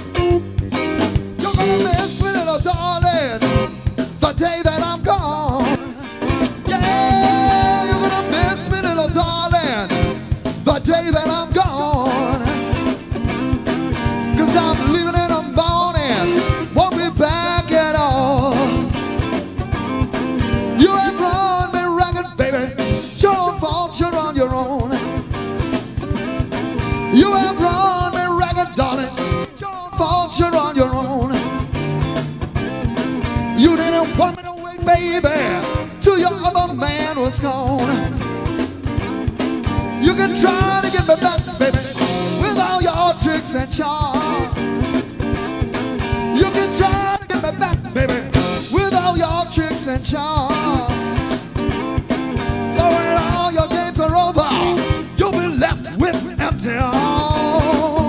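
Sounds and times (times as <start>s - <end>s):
bass guitar: 0.0s - 58.0s
drum kit: 0.0s - 58.0s
electric guitar: 0.0s - 58.0s
male singer: 1.4s - 13.0s, 14.2s - 19.0s, 20.7s - 25.3s, 27.1s - 31.6s, 33.6s - 38.3s, 39.9s - 44.7s, 46.3s - 51.3s, 52.7s - 58.0s.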